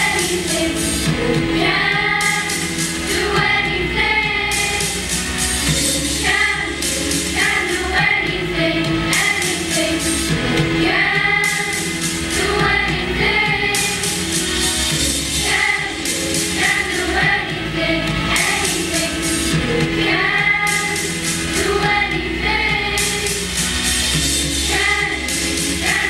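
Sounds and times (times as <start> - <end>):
children's choir singing with instruments: 0.0 - 26.0.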